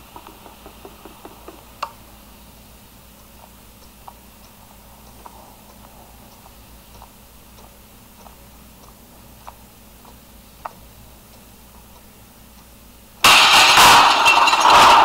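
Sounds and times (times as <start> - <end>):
wall clock ticking: 3.2 - 12.8.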